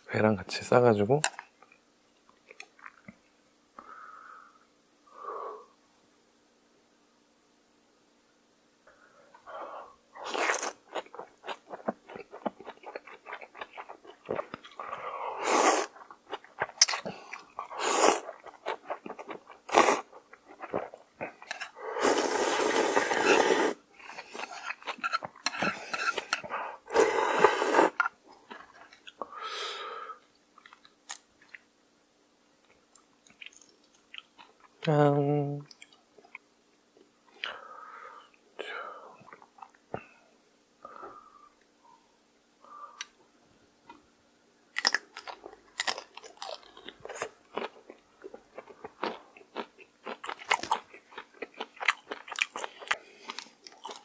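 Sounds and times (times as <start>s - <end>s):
noodle slurps: 15.4s - 16.0s, 22.0s - 23.8s.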